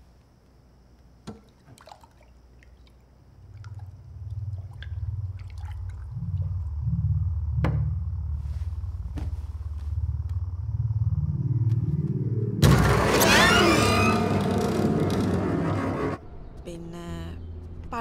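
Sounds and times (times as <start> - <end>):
small liquid sounds: 1.3 - 6.8
man gulping water: 1.5 - 7.0
low pulsing rumbling drone: 3.3 - 18.0.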